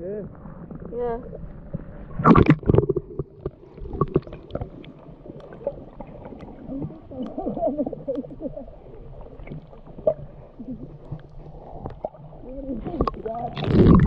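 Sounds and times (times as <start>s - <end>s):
muffled underwater water rumble: 0.0s - 14.0s
muffled warbling sound: 2.2s - 3.3s.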